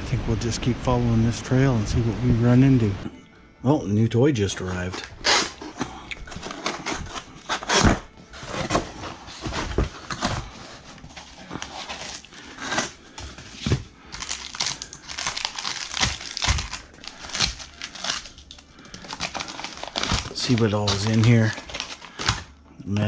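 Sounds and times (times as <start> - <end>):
plastic bag crinkling: 4.6 - 22.6.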